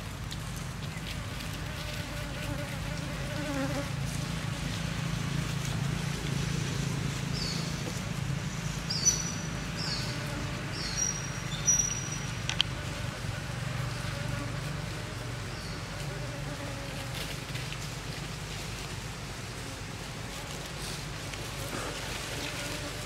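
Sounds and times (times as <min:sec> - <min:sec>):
bees buzzing: 0:01.2 - 0:05.0, 0:08.4 - 0:17.5, 0:19.6 - 0:23.0.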